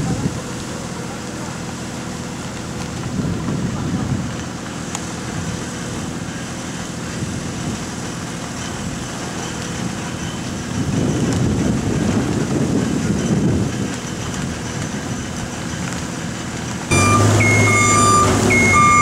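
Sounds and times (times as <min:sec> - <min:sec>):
engine running steadily: 0:00.0 - 0:19.0.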